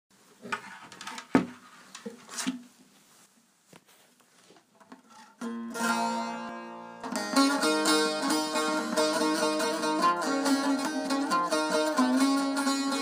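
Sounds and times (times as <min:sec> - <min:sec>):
plucked string notes: 0:05.1 - 0:13.0
strummed string chord: 0:05.4 - 0:13.0.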